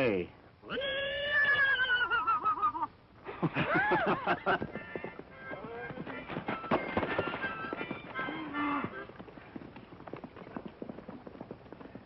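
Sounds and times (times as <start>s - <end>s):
horse hoofbeats galloping: 3.4s - 12.0s.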